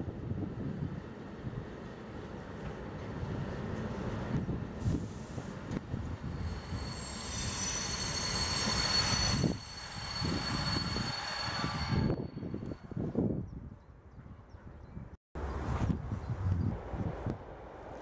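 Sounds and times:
train wheels rumbling: 1.1 - 12.9
high wheel squeal: 6.2 - 12.9.

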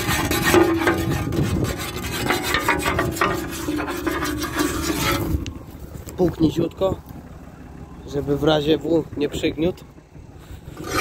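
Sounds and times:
rough rubbing and scraping: 0.0 - 6.3, 10.4 - 11.0
tractor engine drone: 0.0 - 11.0.

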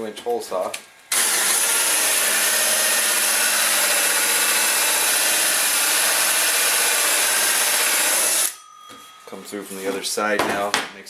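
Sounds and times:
hole saw drilling wood: 1.1 - 8.6.

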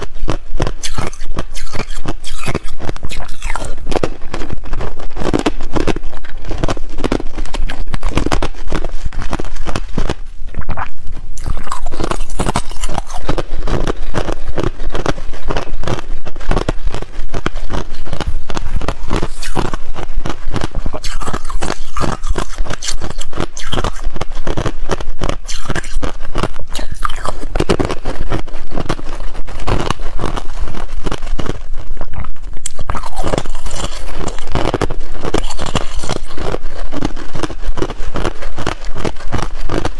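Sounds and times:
ice crunching: 0.8 - 15.8, 32.2 - 37.6.

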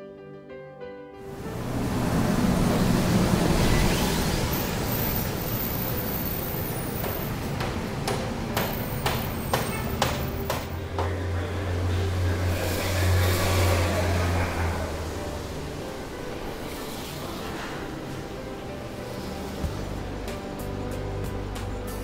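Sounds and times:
street traffic: 1.2 - 22.0
sharp knocks: 7.0 - 11.3.

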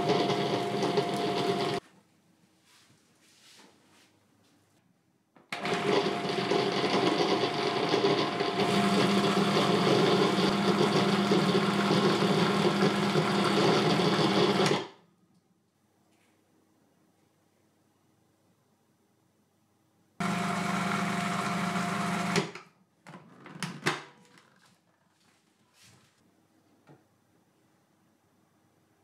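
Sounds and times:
food processor running: 0.0 - 1.8, 5.6 - 15.0, 20.2 - 22.6.

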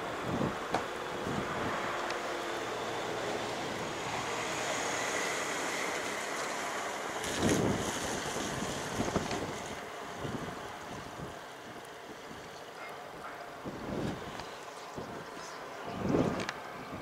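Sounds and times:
wind on microphone: 0.0 - 2.0, 7.2 - 12.5, 13.2 - 17.0
sea waves washing: 0.0 - 16.8.

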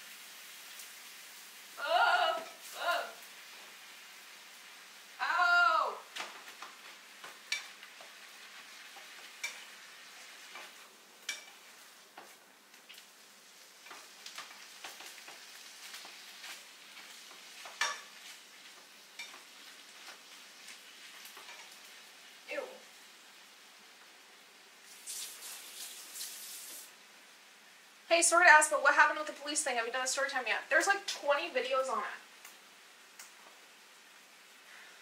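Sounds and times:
food sizzling in a frying pan: 0.0 - 35.0
utensil scraping and clacking on pan: 6.2 - 13.1, 13.8 - 22.0.

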